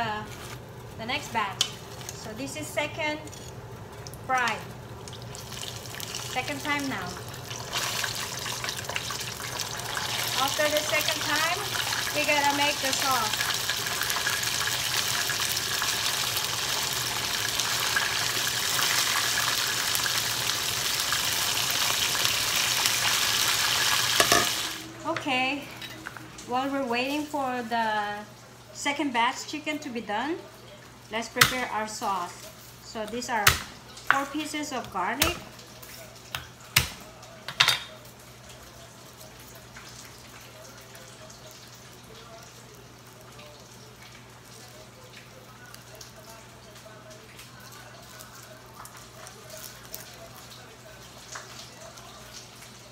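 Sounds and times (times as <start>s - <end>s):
hot oil sizzling and crackling: 0.0s - 29.6s, 30.4s - 52.9s.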